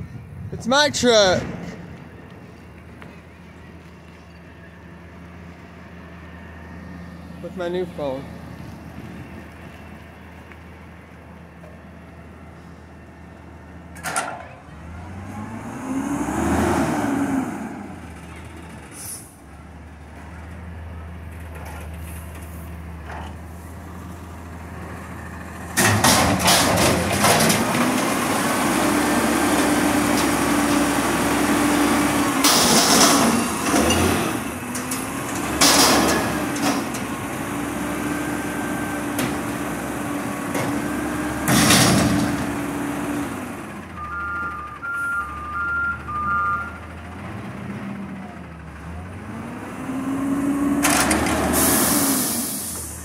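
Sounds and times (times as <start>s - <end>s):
garbage truck engine revving: 14.7s - 19.2s, 24.7s - 53.0s
dumpster banging against truck: 25.7s - 28.2s, 32.3s - 37.1s, 40.5s - 42.7s.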